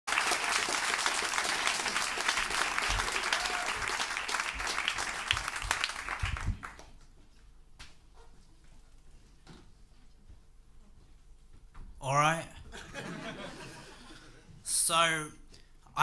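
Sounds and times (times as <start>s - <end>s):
audience applauding: 0.1s - 7.0s.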